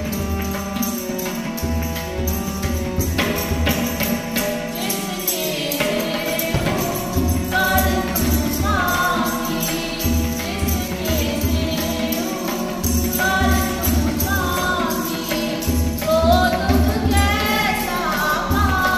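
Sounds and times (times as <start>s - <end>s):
harmonium: 0.0s - 18.9s
jingling hand percussion: 0.0s - 18.9s
tabla strokes: 0.0s - 18.9s
women singing a hymn: 4.7s - 18.9s.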